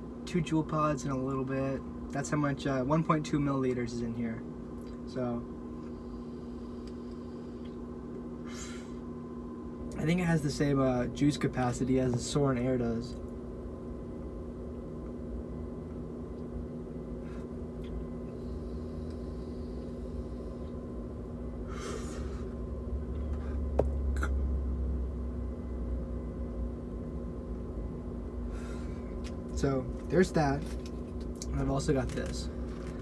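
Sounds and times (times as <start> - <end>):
person exhaling vapour: 8.4 - 9.0, 21.6 - 22.6.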